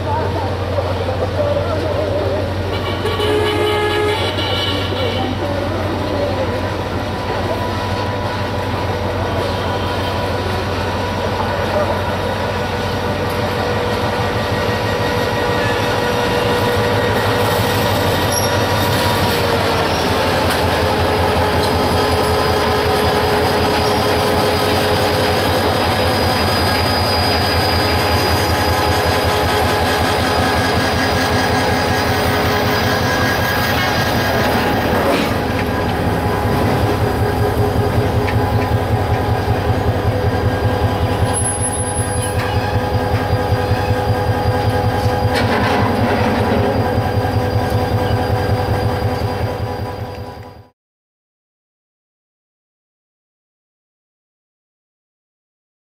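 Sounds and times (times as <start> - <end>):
locomotive engine running: 0.0 - 50.7
train wheels squealing: 7.9 - 35.5, 36.6 - 50.7
wheels clattering over rail joints: 21.4 - 48.2.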